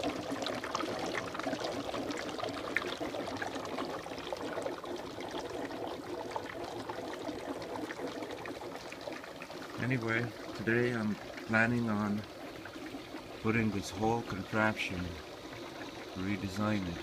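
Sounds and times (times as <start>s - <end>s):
dense crackle of bubbling: 0.0s - 17.0s.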